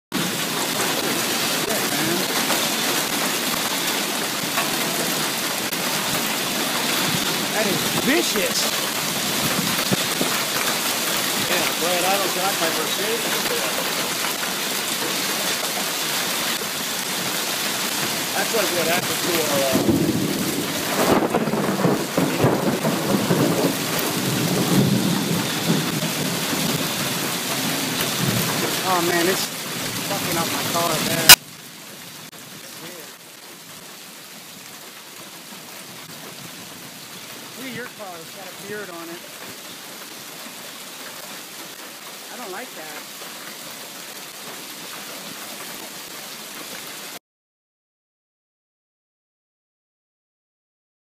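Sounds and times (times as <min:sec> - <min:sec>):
hailstones knocking: 0:00.1 - 0:31.4
heavy rain and hail hiss: 0:00.1 - 0:47.2.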